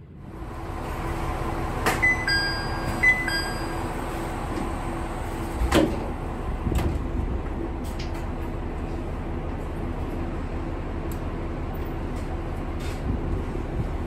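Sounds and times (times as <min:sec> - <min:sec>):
railcar steady hum: 0:00.0 - 0:14.0
two-note door chime: 0:02.0 - 0:03.9
sliding doors closing with a knock: 0:05.4 - 0:07.1.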